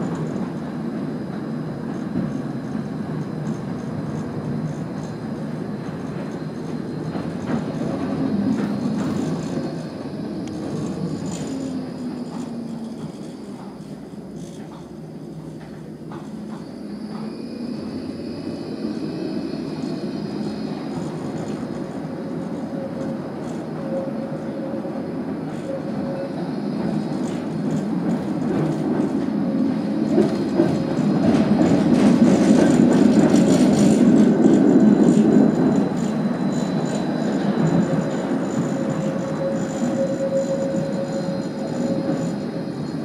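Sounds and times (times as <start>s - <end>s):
tram wheels rumbling on rails: 0.0s - 43.0s.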